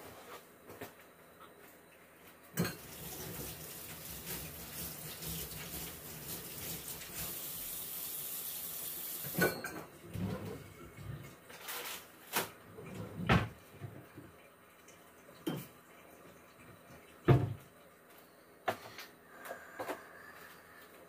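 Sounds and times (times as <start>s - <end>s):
dishes and cutlery clinking: 2.5s - 3.0s, 9.3s - 9.9s
tap water running into sink: 2.6s - 11.3s.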